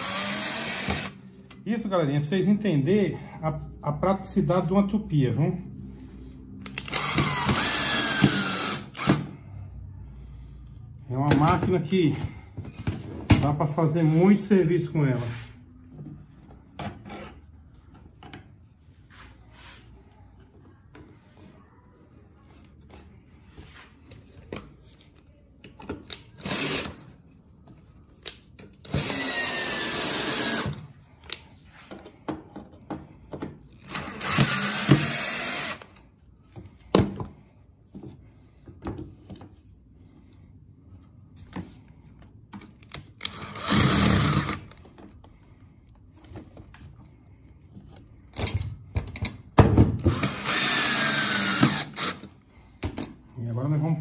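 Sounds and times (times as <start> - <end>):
cordless drill driving screws: 0.0 - 1.2, 6.7 - 9.3, 26.4 - 27.0, 28.8 - 30.8, 33.8 - 36.0, 43.2 - 44.8, 50.1 - 52.4.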